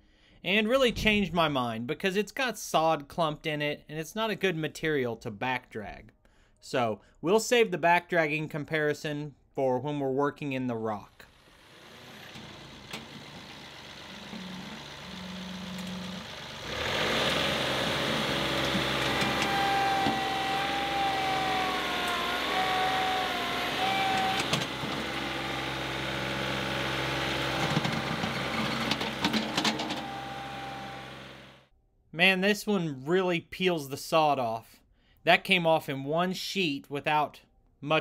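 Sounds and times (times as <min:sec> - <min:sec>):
tractor diesel engine running: 0:11.3 - 0:31.6
high hydraulic whine: 0:11.4 - 0:31.6.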